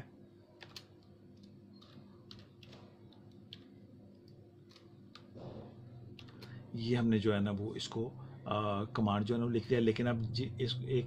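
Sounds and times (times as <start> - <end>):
low steady hum: 0.0 - 11.0
keyboard key clicks: 0.6 - 3.7.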